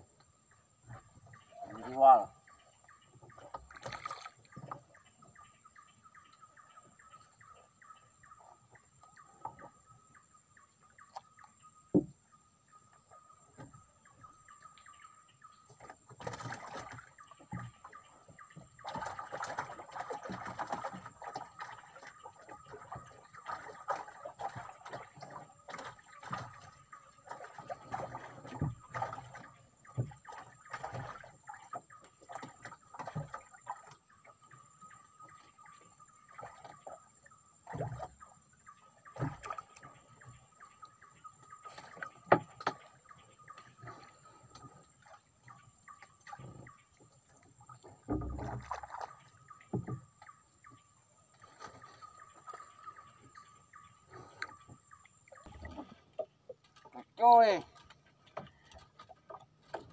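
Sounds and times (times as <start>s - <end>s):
water slapping around a boat: 0.0s - 59.9s
knocks on a wooden boat: 11.9s - 12.2s.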